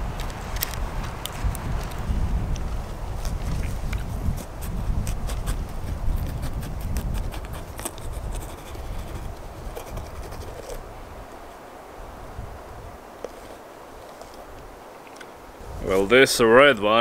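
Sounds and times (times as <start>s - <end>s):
knife cutting crunchy pepper: 6.2s - 10.8s.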